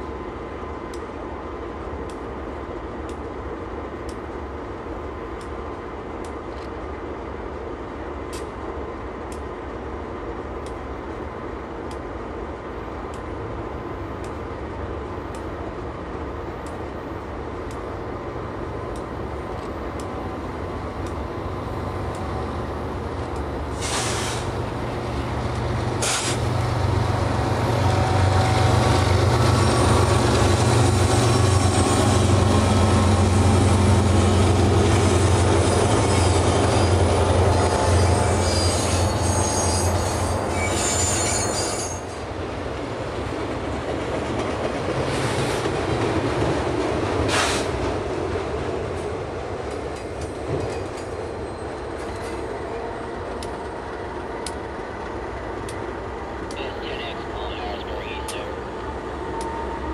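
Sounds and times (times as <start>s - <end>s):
diesel locomotives running: 0.0s - 59.9s
wheel squeal against rail: 35.6s - 42.2s, 50.6s - 52.6s.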